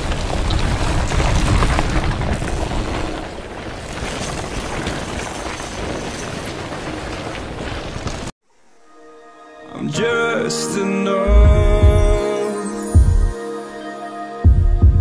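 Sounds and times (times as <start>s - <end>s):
wind buffeting microphone: 0.0s - 8.3s.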